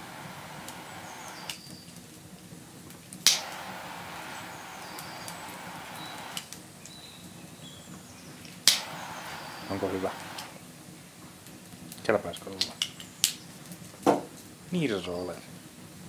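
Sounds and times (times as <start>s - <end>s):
torch lighter clicking on: 0.0s - 1.7s, 3.2s - 6.6s, 8.6s - 10.6s
faint bird chirps: 0.0s - 2.0s, 3.4s - 10.5s
torch lighter hissing: 0.0s - 2.0s, 3.0s - 10.8s.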